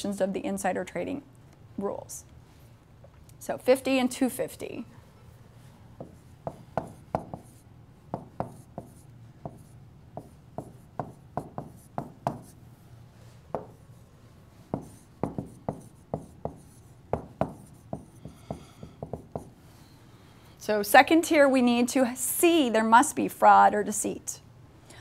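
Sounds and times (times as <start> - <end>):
stylus tapping on touchscreen: 13.5 - 13.8, 14.7 - 16.6.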